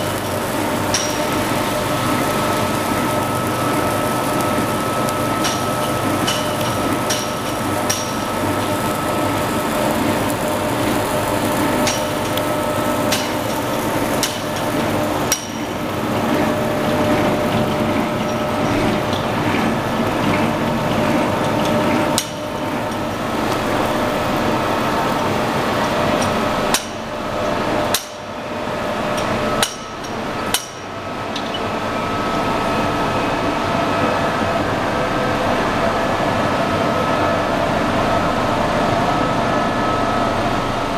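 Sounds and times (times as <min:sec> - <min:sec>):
machinery drone: 0:00.0 - 0:40.9
sharp metallic clicks and knocks: 0:05.4 - 0:08.3.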